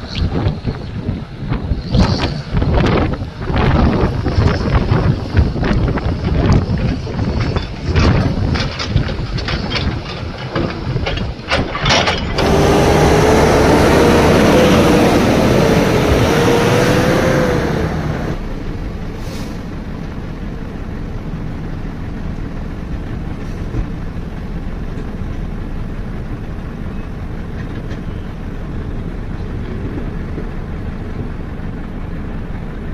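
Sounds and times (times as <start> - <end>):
diesel truck engine: 0.0 - 32.9
rock clattering into steel truck body: 7.2 - 12.4.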